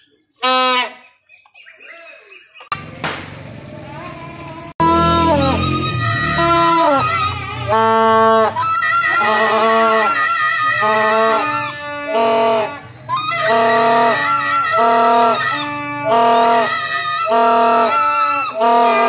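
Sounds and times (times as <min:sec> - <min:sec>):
plastic toy trumpet horns tooting: 0:00.4 - 0:01.1, 0:04.8 - 0:19.0.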